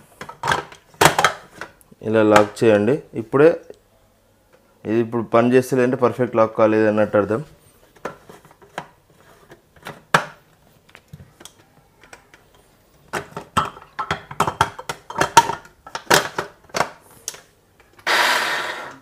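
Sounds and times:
plastic bowl clicking and knocking: 0:13.1 - 0:17.0.

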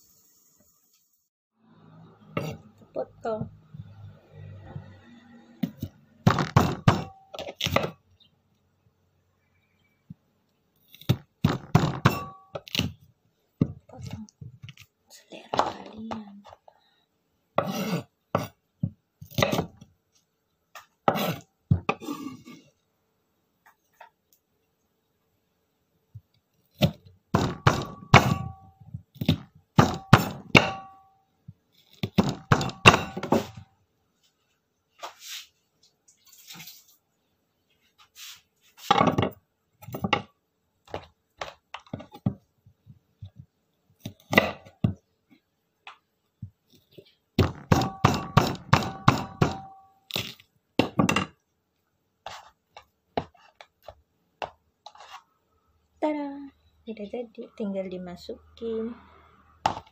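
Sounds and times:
knife chopping on wooden board: 0:05.6 - 0:08.0, 0:17.6 - 0:19.8, 0:26.8 - 0:28.6, 0:29.2 - 0:30.9, 0:31.9 - 0:33.6, 0:47.4 - 0:49.8.

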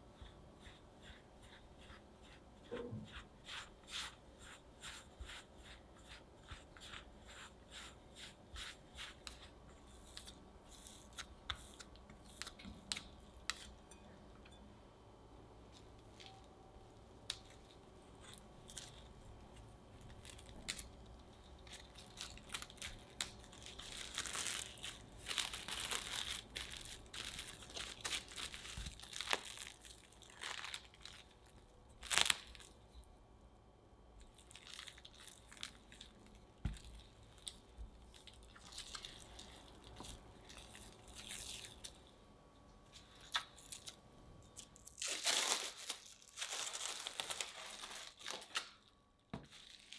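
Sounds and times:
rolling pin rolling dough: 0:00.0 - 0:12.7
plastic wrap crinkling: 0:17.3 - 0:32.8, 0:34.2 - 0:42.1, 0:44.6 - 0:49.9.

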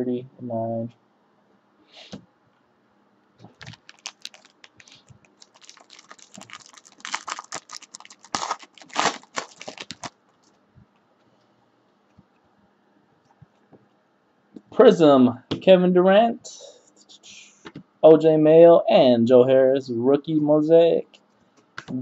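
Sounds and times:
foil pack crinkling and tearing: 0:03.5 - 0:10.5.

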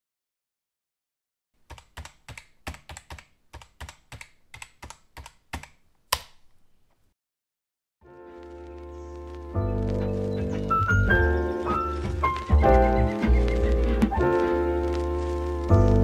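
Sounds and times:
typing on keys: 0:01.6 - 0:06.3
music: 0:08.0 - 0:16.0.

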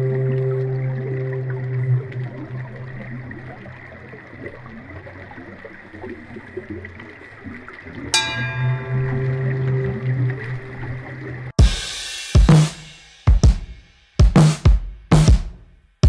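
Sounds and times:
sudden ringing hit: 0:08.2 - 0:10.1.

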